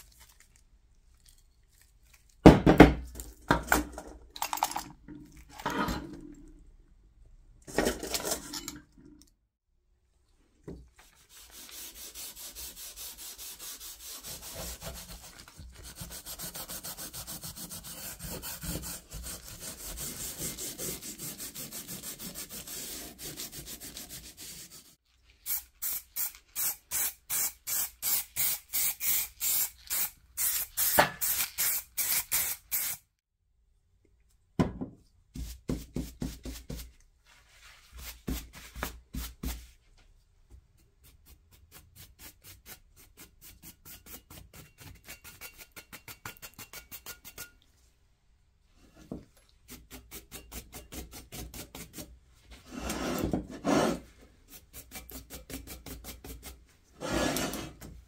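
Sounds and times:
sanding block rubbing metal: 11.4 - 28.6.

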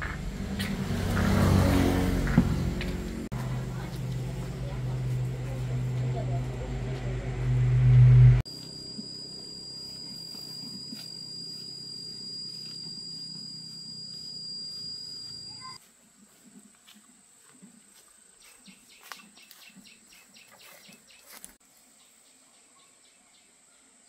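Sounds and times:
low rumble: 0.0 - 8.4
high insect whine: 8.5 - 15.8.

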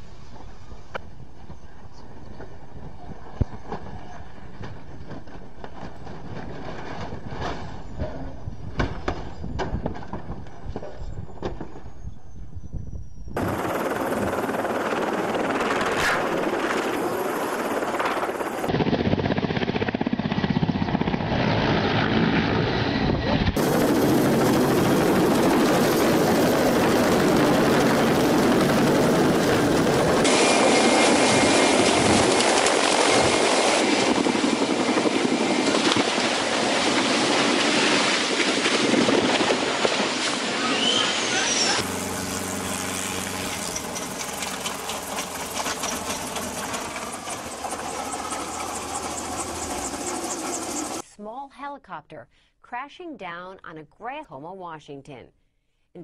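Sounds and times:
helicopter rotor roar: 13.2 - 51.0
falling whine: 23.0 - 51.0.

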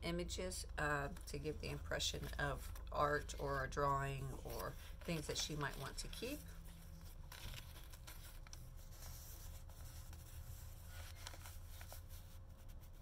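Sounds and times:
low steady hum: 0.0 - 13.0
paper rustling: 1.1 - 13.0.

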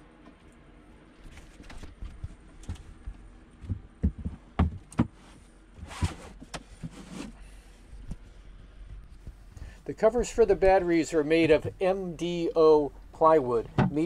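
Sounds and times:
knocks on wooden hatch lid: 4.0 - 5.1
scraping rustle: 5.2 - 7.6.

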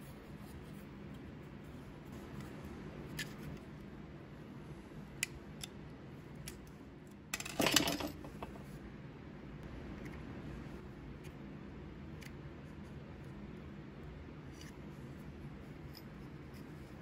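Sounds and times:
metal parts clinking clatter: 7.3 - 8.5.

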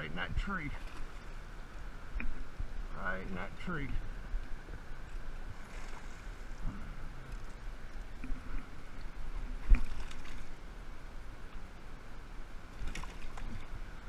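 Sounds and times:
fish splashing at the surface: 9.6 - 10.6, 12.8 - 13.7.

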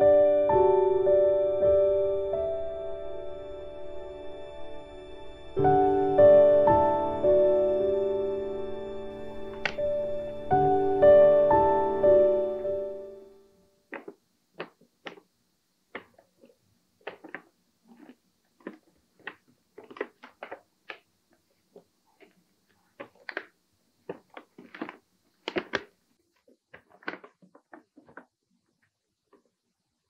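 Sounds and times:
plastic wrapping crinkling: 9.2 - 10.1, 13.9 - 15.3, 15.9 - 29.5.

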